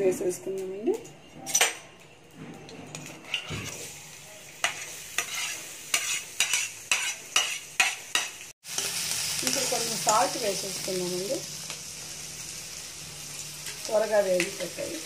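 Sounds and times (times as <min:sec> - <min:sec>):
onions sizzling in hot oil: 0:03.2 - 0:15.0
sharp scraping on a pan: 0:04.6 - 0:08.4.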